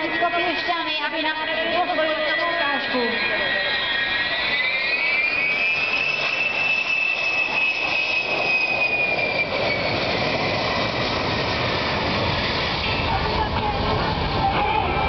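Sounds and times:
deep engine roar: 0.0 - 15.0
high engine whine: 0.0 - 15.0
jet airliner passing low: 0.0 - 15.0.

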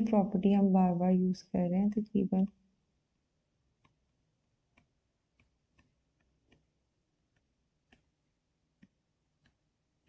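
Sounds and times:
stylus tapping a screen: 3.8 - 4.0, 4.7 - 6.7, 7.3 - 8.2.

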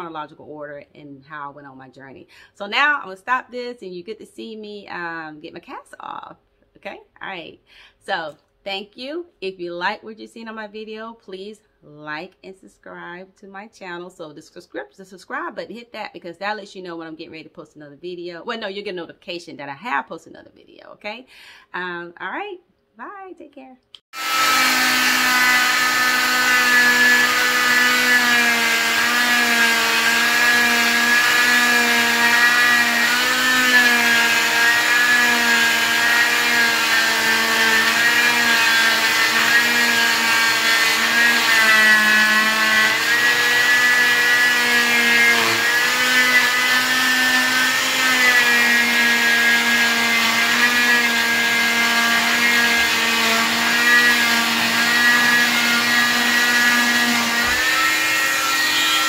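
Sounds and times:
cast saw cutting: 24.0 - 59.0.

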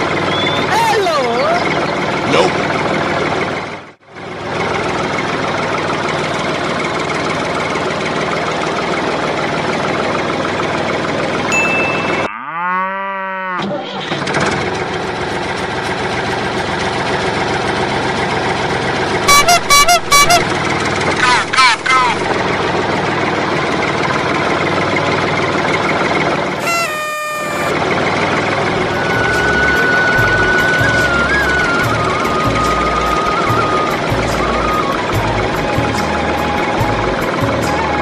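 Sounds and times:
tractor engine: 0.0 - 12.3, 13.6 - 38.0
music: 28.9 - 38.0.

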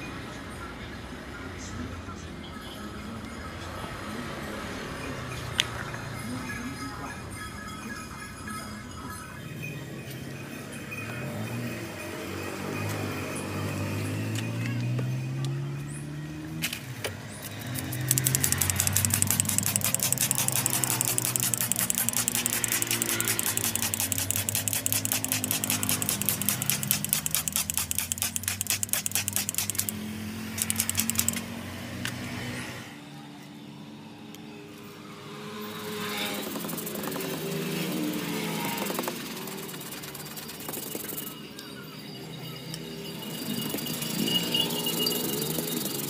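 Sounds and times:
stiff brush scrubbing wet fabric: 17.7 - 30.0.

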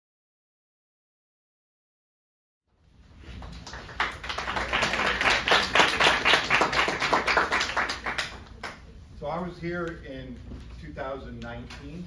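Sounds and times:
small audience applauding: 3.3 - 8.9.

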